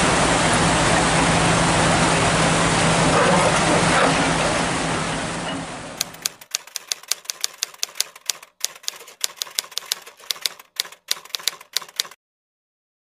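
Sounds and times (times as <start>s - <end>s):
typewriter keys clacking: 6.0s - 12.2s.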